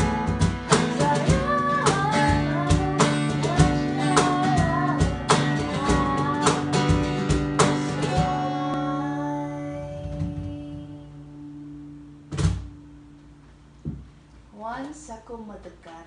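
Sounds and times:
woman singing: 0.0 - 11.6
acoustic guitar strumming: 0.0 - 14.2.

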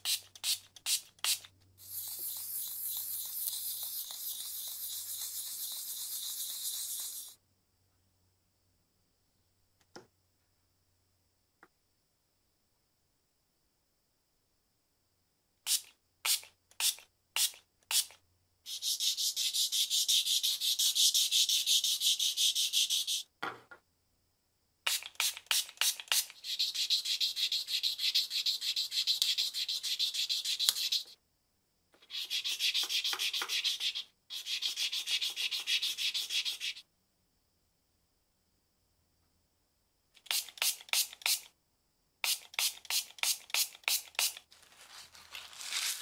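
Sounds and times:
sandpaper rubbing on metal: 0.0 - 7.4, 18.7 - 23.2, 26.1 - 31.2, 32.1 - 36.8.

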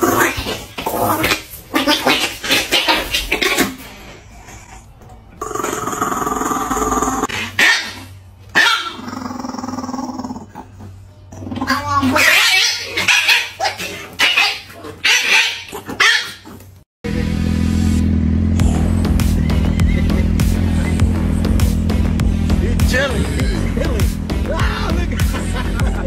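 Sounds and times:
small dog barking and growling: 5.5 - 10.7, 11.4 - 16.6
engine drone: 17.0 - 26.0.

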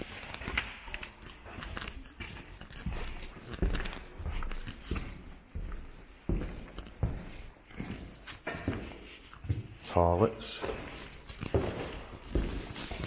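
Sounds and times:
footsteps walking: 0.0 - 13.0.

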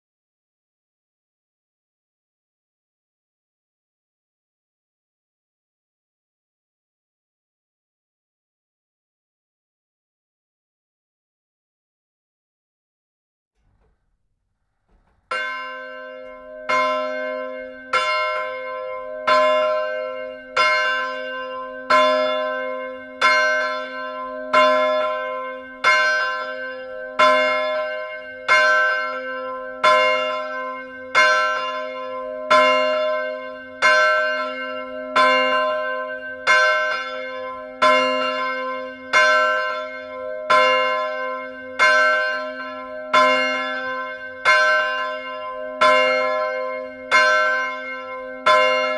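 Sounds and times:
church bell ringing: 15.2 - 48.9.

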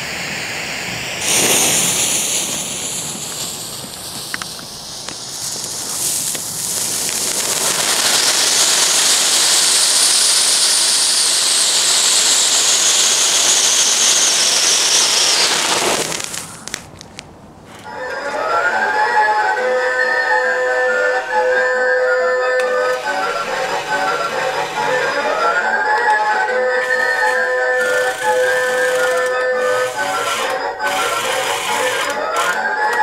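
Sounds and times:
jet-flame lighter hissing: 0.0 - 17.2, 22.6 - 25.2, 26.8 - 32.1
firework fountain spraying sparks: 0.0 - 17.4, 22.6 - 33.0.

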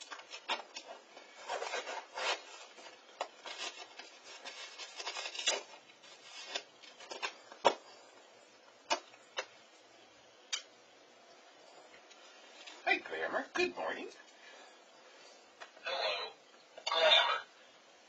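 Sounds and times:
packaging scraping and tearing: 0.0 - 7.8.

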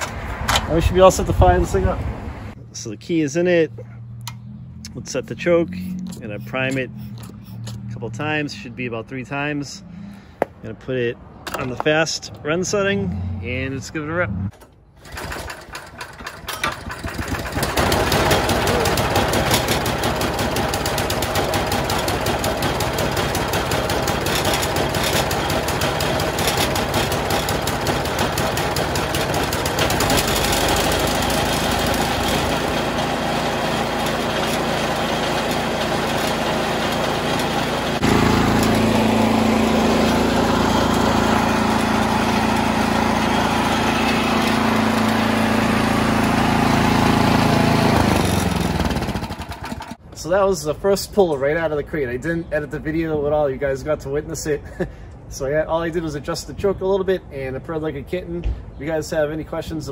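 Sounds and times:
engine pull start: 14.5 - 32.9, 47.4 - 50.0
snow blower engine running: 15.0 - 50.0.

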